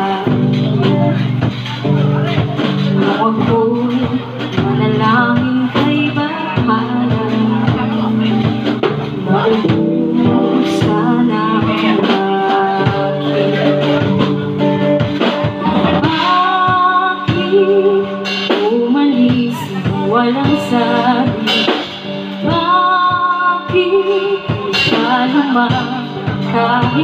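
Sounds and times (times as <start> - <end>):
drum kit beat: 0.0 - 27.0
guitar: 0.0 - 27.0
woman singing: 0.0 - 27.0.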